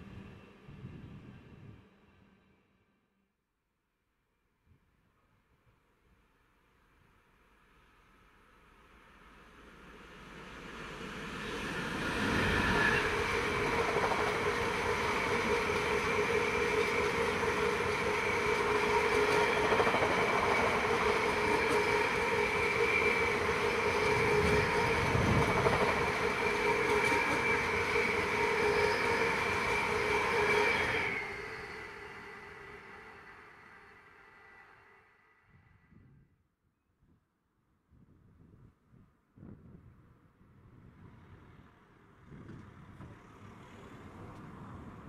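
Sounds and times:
diesel locomotive passing: 0.0 - 2.6, 7.5 - 35.5, 40.8 - 45.0.

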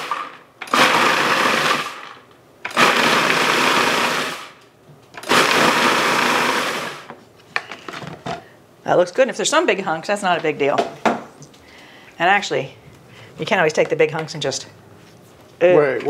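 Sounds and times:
food processor chopping cookies: 0.0 - 7.1.

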